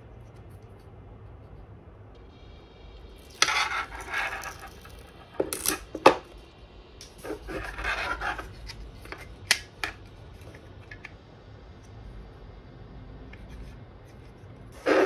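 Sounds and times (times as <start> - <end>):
plastic rubbing and scraping: 3.3 - 5.9, 7.1 - 10.9.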